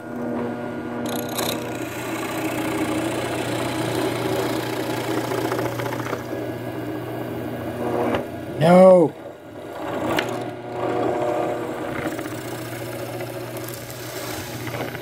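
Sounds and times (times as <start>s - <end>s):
drill press boring wood: 0.0s - 15.0s.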